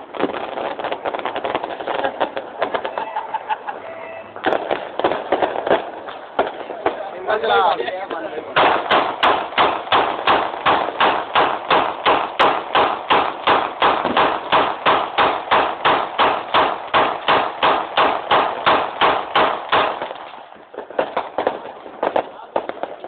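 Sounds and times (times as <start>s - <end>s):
rapid handgun shots: 8.6s - 20.2s.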